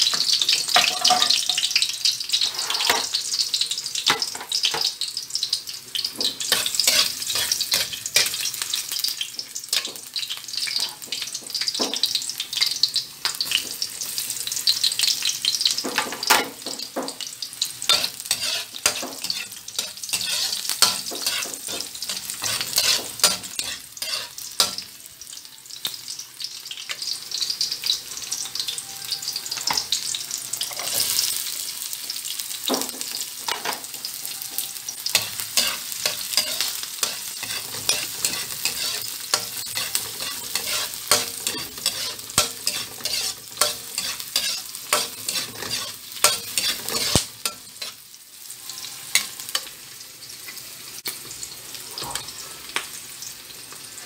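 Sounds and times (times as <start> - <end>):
food sizzling in hot oil: 0.0 - 54.0
spoon scraping a metal pan: 2.4 - 3.2, 6.4 - 8.5, 17.9 - 24.8, 30.6 - 31.3, 35.1 - 48.0, 48.7 - 49.7.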